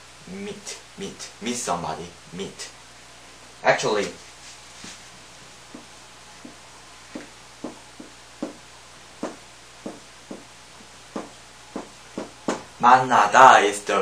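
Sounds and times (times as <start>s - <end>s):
marker tapping on whiteboard: 5.7s - 8.6s, 9.2s - 10.5s, 11.1s - 12.7s.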